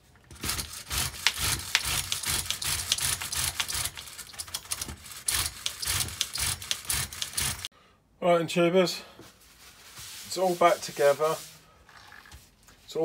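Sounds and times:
parts rubbing and clicking on bench: 0.3s - 7.7s.

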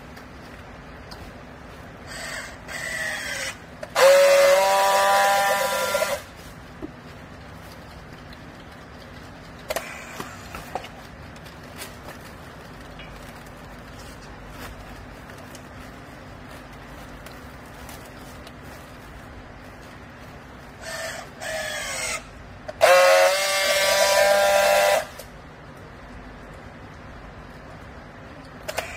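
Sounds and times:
strapping tool whirring: 2.1s - 6.4s.

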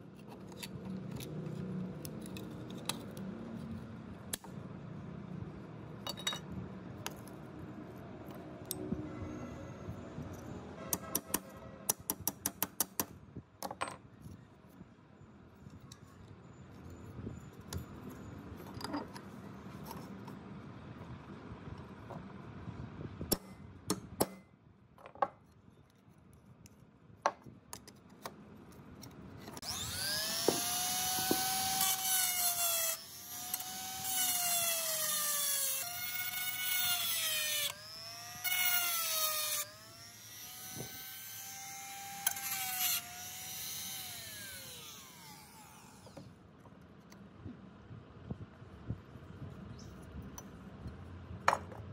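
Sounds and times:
rotary tool grinding metal: 29.5s - 46.4s.

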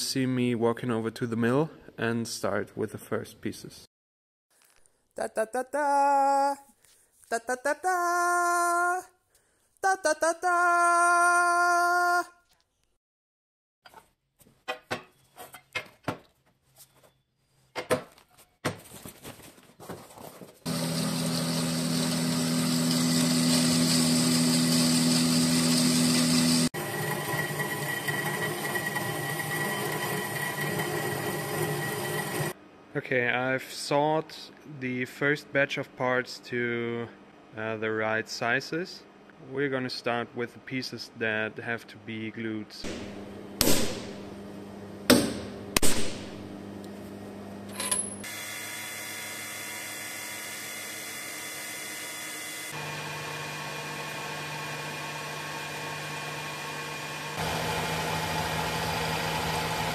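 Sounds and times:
band saw cutting metal: 20.7s - 32.5s, 48.2s - 59.9s
milling machine spindle running: 20.7s - 32.5s, 48.3s - 59.9s.

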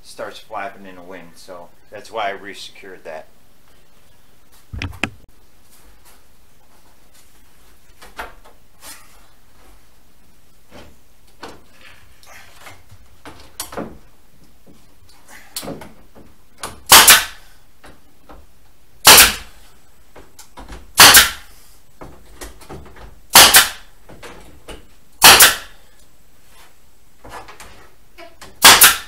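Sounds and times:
nail gun shots: 16.9s - 17.4s, 19.0s - 19.5s, 21.0s - 21.5s, 23.3s - 23.9s, 25.2s - 25.7s, 28.6s - 29.0s.

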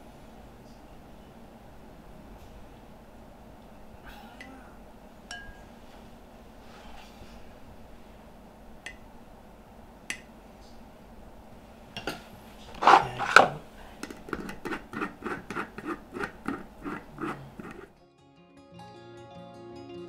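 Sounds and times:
screw lid clicking on threads: 14.0s - 17.9s.

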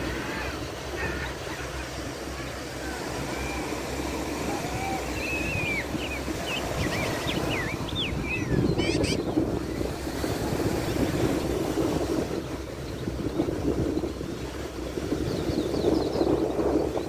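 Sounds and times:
surf rumbling: 0.0s - 17.0s
wind rumbling: 2.2s - 17.0s
bird whistling: 4.5s - 9.2s.

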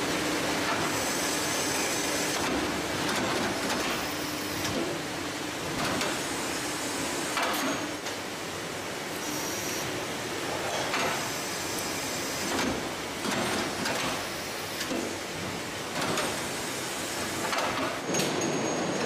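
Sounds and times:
production machinery hissing: 0.0s - 2.7s.

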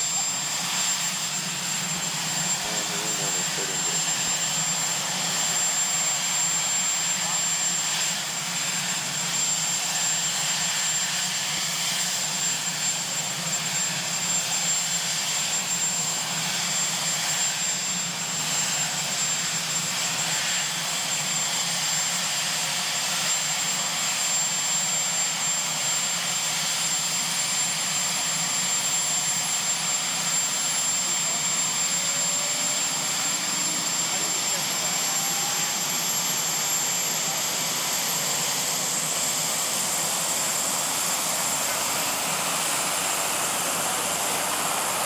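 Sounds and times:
rising whine: 0.0s - 7.1s
helicopter turbine engines roaring: 0.0s - 45.0s
high turbine whine: 0.0s - 45.0s.

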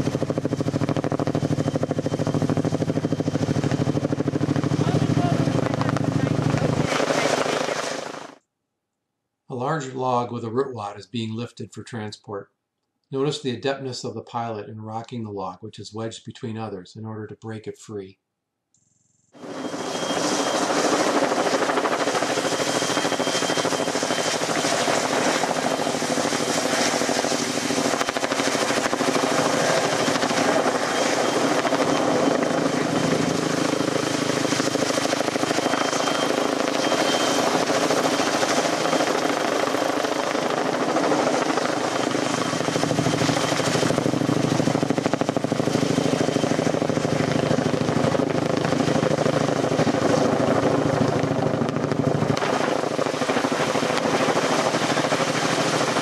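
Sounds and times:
helicopter rotor and engine: 0.0s - 8.4s, 18.8s - 56.0s
thin steady whine: 18.8s - 49.5s.

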